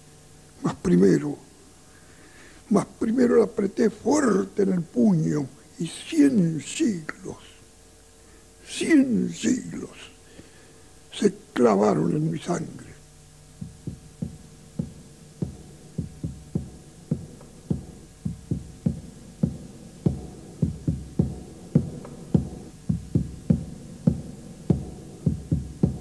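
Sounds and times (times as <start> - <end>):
deep drum beats: 13.6 - 26.0.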